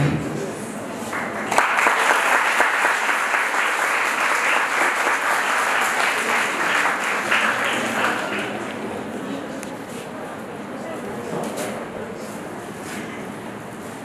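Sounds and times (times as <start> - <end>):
audience applauding: 1.0 - 8.9.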